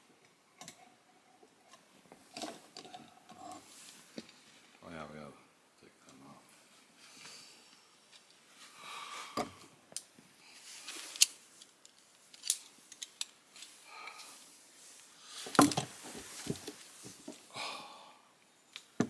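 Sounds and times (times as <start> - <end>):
soft rustling: 3.4 - 5.0, 6.0 - 9.4, 10.2 - 17.5
metal climbing gear clicking: 10.9 - 14.3.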